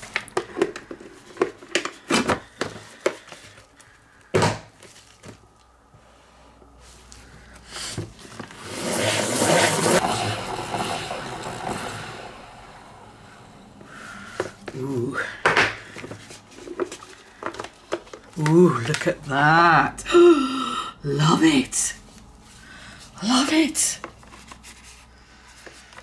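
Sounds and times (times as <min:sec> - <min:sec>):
salad spinner whirring and rattling: 0:08.5 - 0:13.8.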